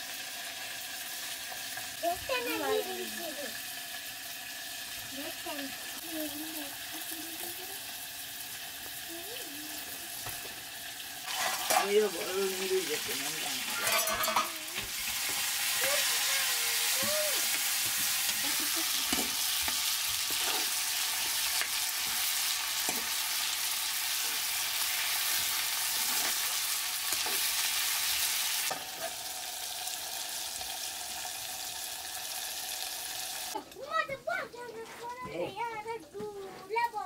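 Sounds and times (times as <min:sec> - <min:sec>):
meat sizzling in a pan: 0:00.0 - 0:34.0
metal ladle scraping a pan: 0:11.2 - 0:12.3, 0:12.9 - 0:16.2, 0:16.8 - 0:23.3, 0:24.1 - 0:27.6.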